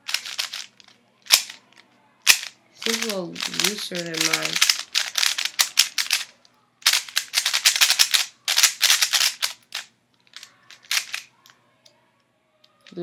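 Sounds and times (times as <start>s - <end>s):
speed cube layers clacking: 0.0s - 0.7s, 1.3s - 1.6s, 2.3s - 11.2s.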